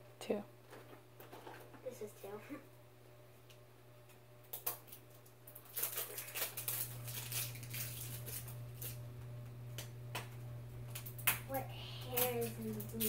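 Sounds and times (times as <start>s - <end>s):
plastic wrapping crackling: 4.5s - 9.0s, 10.8s - 13.0s.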